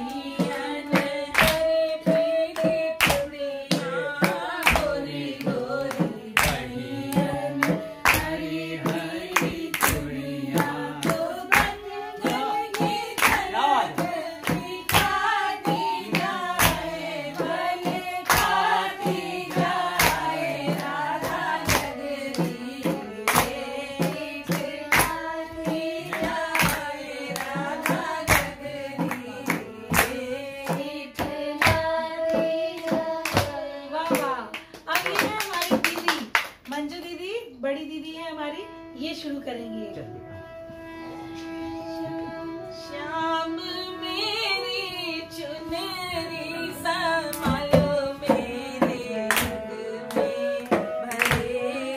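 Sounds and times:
voices singing folk song: 0.0 - 34.4, 42.2 - 51.9
hand-clapping: 0.0 - 36.9, 47.3 - 51.9
bamboo flute: 50.2 - 51.9.

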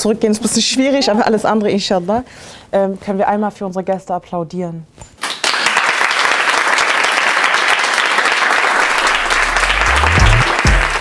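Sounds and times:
audience applauding: 5.2 - 11.0
low rising tone: 8.9 - 11.0.

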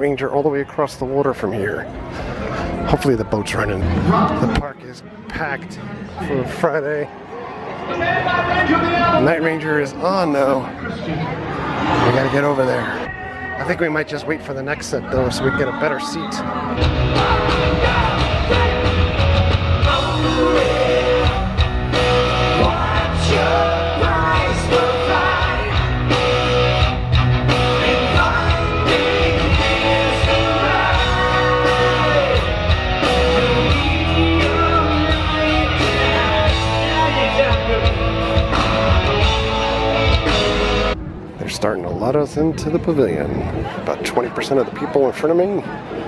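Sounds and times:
electric guitars: 16.4 - 41.4
lead singer: 16.5 - 41.0
live rock band: 16.6 - 41.0
drums: 16.7 - 41.0.

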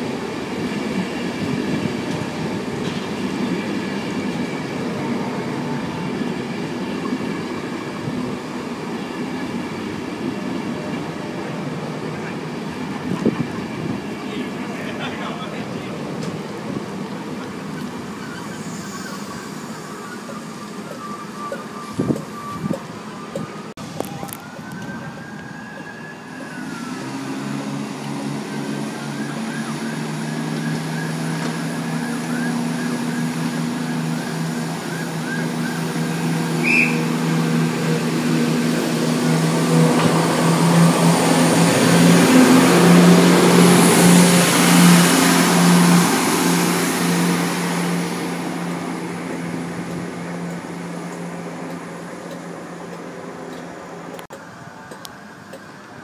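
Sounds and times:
diesel train engines droning: 0.0 - 56.0.

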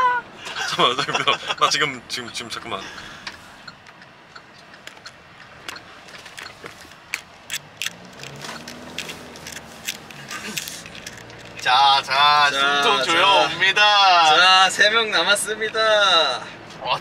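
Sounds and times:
sharp ticking clicks: 1.2 - 11.7.

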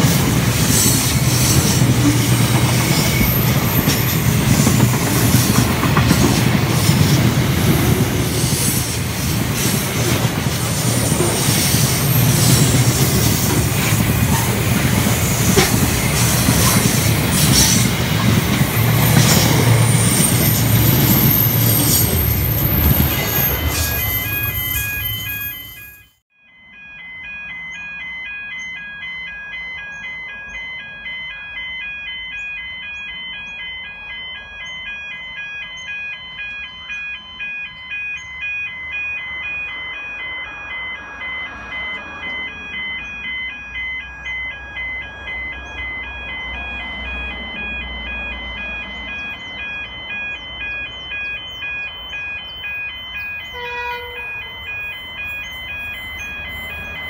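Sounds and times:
freight train wheels clattering: 0.0 - 25.5
high steady squeal: 10.6 - 26.2.

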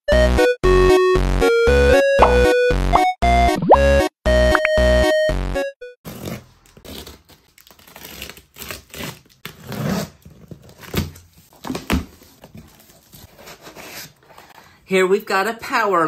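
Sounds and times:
knife slitting packing tape: 6.1 - 11.2
cardboard flaps tearing and scraping: 6.1 - 14.2.

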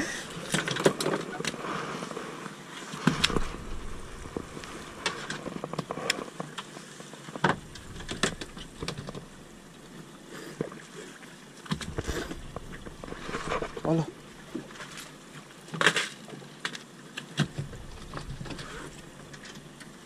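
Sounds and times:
small waves lapping against boat: 0.0 - 20.0
sharp knocks and clicks: 7.4 - 9.4.

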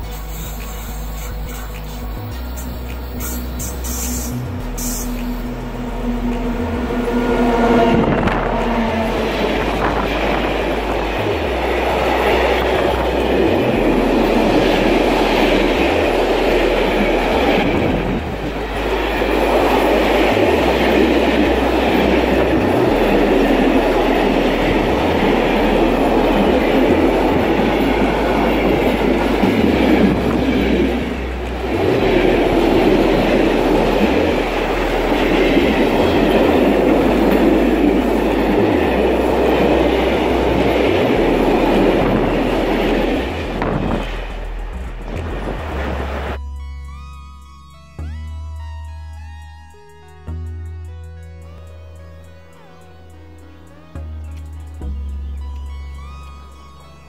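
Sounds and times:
freight train rolling past: 0.0 - 46.4.

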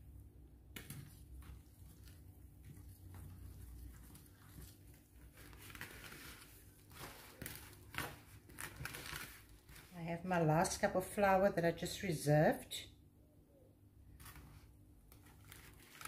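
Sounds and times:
whisk scraping dough in glass bowl: 1.4 - 7.5.

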